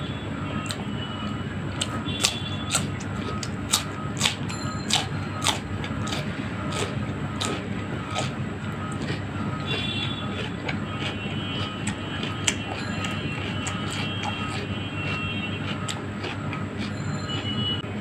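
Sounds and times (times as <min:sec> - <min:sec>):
steady low hum: 0:00.0 - 0:18.0
person crunching cucumber: 0:00.6 - 0:17.6.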